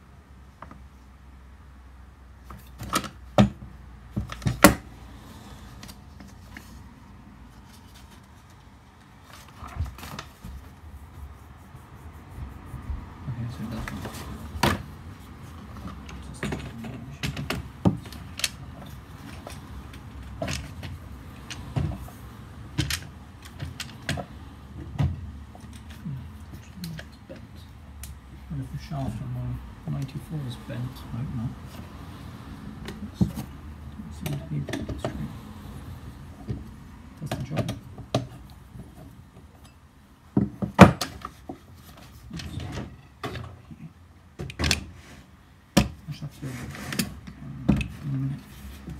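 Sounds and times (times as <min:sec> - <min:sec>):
rubbing noise: 0:09.3 - 0:15.7.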